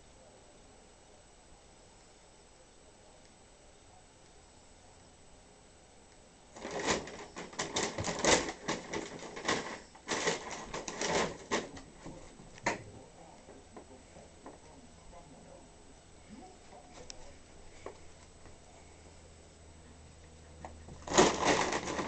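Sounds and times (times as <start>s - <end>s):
bag rustling and crinkling: 6.6s - 12.1s, 21.0s - 22.0s.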